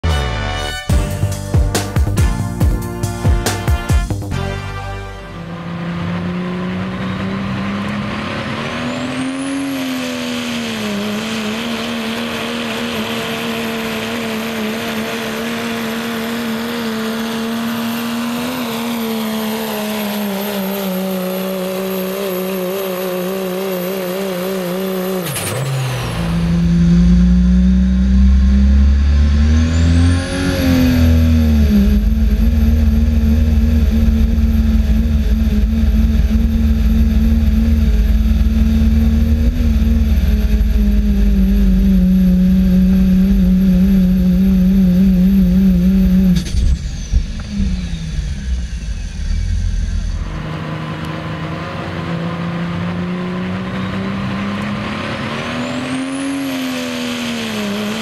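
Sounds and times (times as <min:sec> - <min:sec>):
diesel truck engine at full throttle: 0:00.0 - 0:58.0
high engine whine: 0:00.0 - 0:58.0
heavy low rumble: 0:25.8 - 0:51.0.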